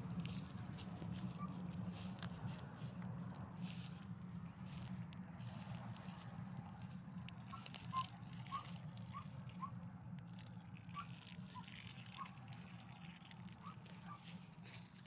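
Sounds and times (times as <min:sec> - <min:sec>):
water pouring onto soil: 0:05.4 - 0:15.0.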